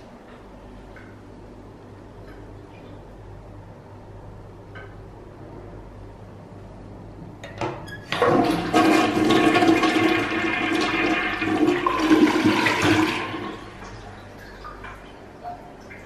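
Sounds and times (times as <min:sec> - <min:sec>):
toilet water rushing: 0:08.1 - 0:15.2.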